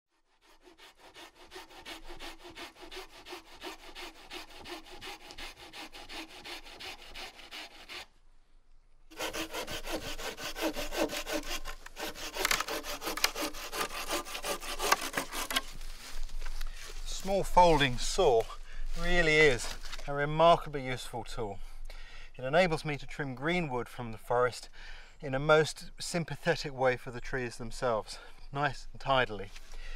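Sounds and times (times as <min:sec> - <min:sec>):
hand saw cutting wood: 0:00.1 - 0:08.1, 0:09.1 - 0:17.9.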